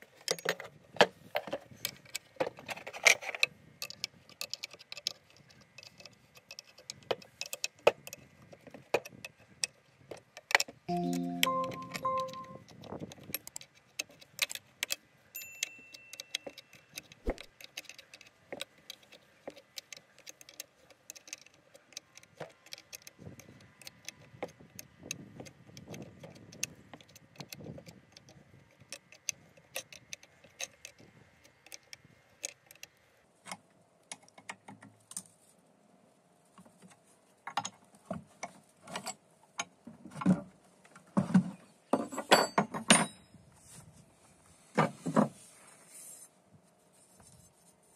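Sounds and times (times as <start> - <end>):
spanner clinking on bolts: 15.4 - 18.3.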